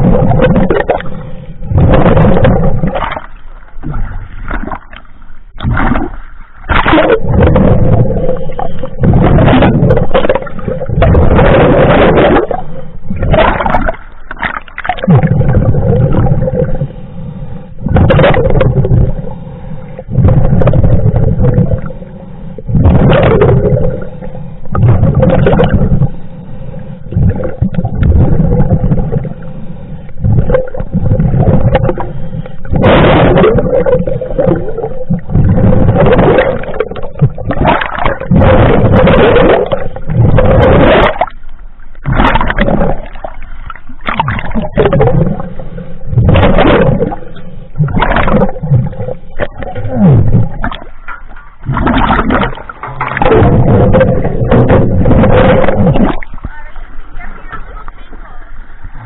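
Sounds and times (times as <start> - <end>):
exhaled bubbles rushing: 0.0 - 16.9, 17.8 - 26.2, 27.0 - 56.5
diver inhaling through regulator: 19.0 - 22.8.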